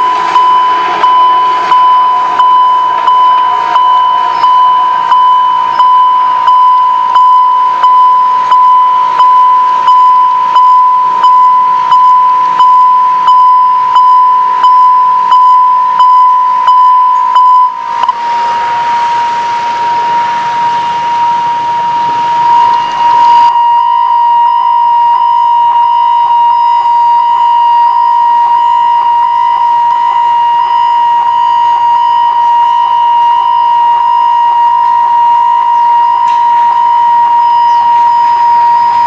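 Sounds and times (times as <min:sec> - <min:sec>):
electronic warning tone: 0:00.0 - 0:39.0
rushing noise: 0:00.0 - 0:39.0.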